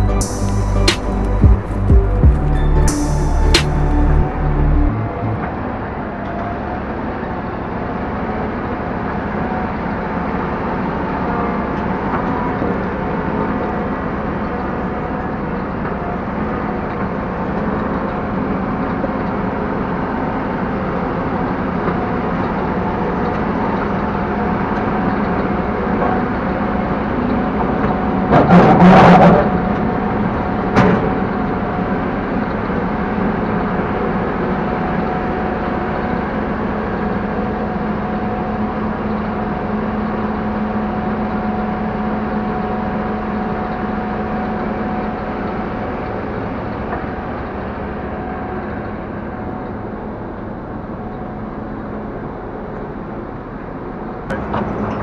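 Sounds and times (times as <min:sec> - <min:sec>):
combine harvester engine running: 0:00.0 - 0:55.0.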